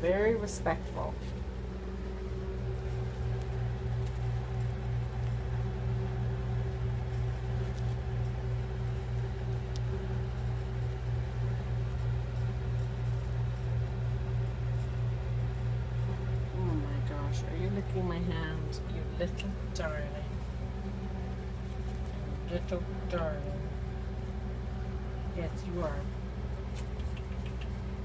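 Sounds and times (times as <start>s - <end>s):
low mechanical hum: 0.0s - 28.0s.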